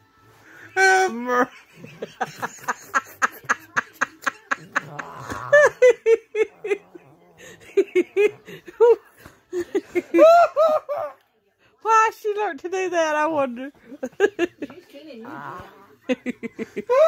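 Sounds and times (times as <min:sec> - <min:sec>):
person laughing: 0:01.1 - 0:09.0.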